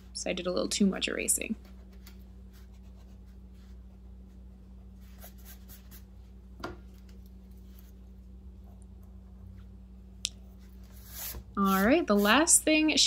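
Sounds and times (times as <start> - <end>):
faint steady hum: 0.0 - 13.0
eraser rubbing on paper: 5.0 - 6.1, 10.8 - 12.6.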